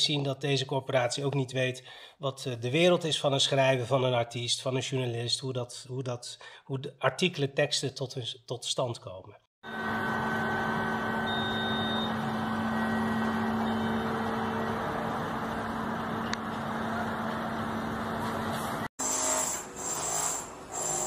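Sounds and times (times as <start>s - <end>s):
construction machinery droning: 9.6s - 18.9s
machine noise: 9.6s - 21.0s.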